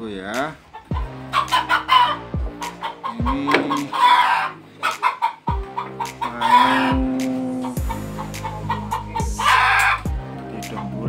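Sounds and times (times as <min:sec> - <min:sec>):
chicken calling: 0:00.6 - 0:10.1
dance music with bass drum: 0:00.9 - 0:01.1, 0:02.4 - 0:02.6, 0:03.2 - 0:04.0, 0:05.5 - 0:05.7, 0:06.9 - 0:10.3.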